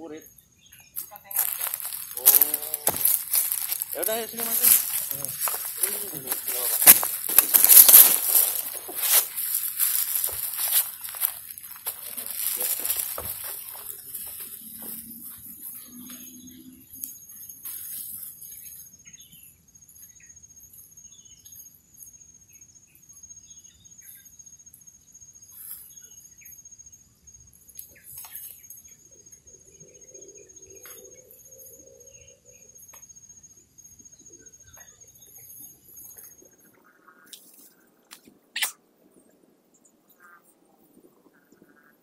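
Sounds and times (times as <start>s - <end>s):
birds chirping: 0.0s - 19.5s
high-pitched insect whine: 0.0s - 36.7s.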